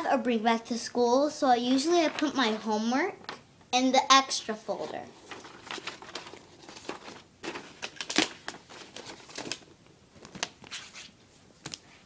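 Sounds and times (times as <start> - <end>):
paper rustling and scraping: 1.7 - 2.9, 4.4 - 11.8.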